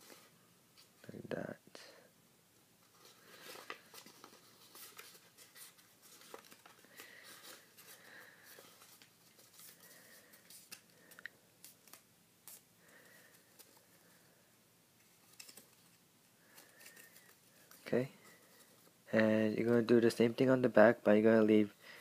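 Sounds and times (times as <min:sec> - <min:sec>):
paper rustling and crinkling: 0:02.8 - 0:14.0, 0:15.0 - 0:19.0.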